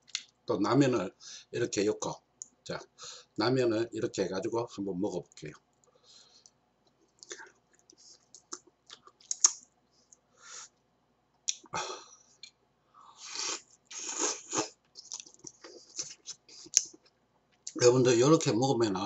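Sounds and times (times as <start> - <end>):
wet chewing and smacking: 7.2 - 9.6, 13.9 - 17.8
noisy sucking: 13.2 - 16.9.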